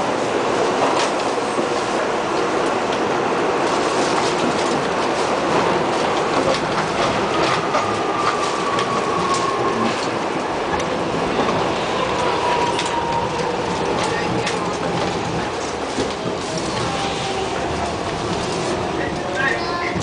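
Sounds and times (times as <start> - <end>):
subway wheels rumbling on rail: 0.0 - 20.0
rail-joint clicks: 4.1 - 17.0.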